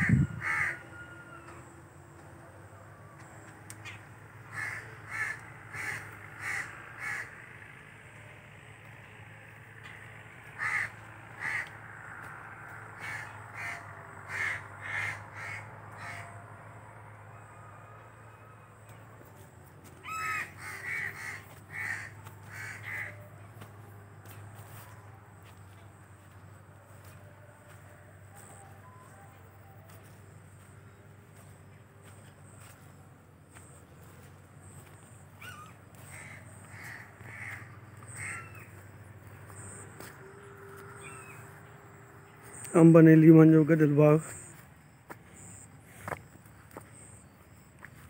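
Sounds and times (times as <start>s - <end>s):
crows cawing: 0.0s - 2.2s, 3.2s - 16.8s, 19.9s - 29.0s, 29.9s - 42.7s.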